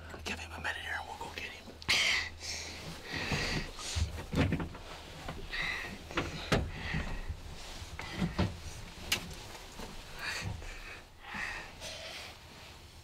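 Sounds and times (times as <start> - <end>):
soft breathy hissing: 1.9 - 4.2, 10.1 - 13.0.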